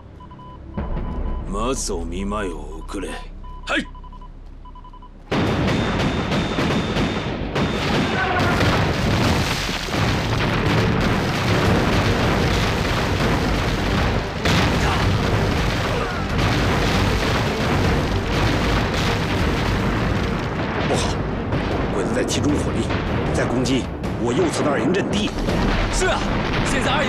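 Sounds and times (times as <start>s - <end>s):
field guns firing: 5.3s - 21.9s
shells exploding: 5.3s - 23.5s.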